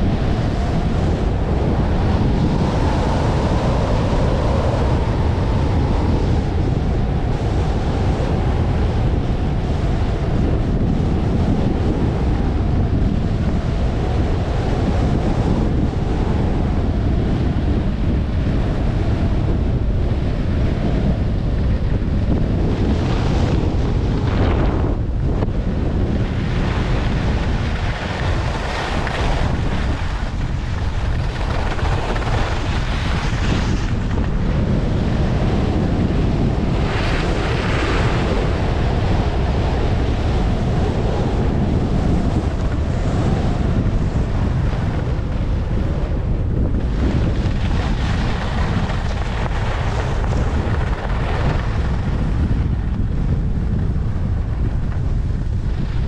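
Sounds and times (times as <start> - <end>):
wind buffeting microphone: 0.0 - 56.0
skis sliding on snow: 26.5 - 34.3, 46.9 - 52.3.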